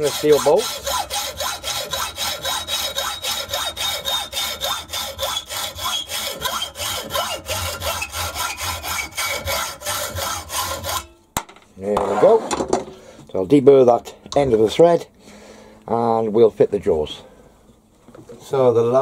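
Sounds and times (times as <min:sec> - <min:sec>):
hacksaw cutting metal: 0:00.0 - 0:11.2.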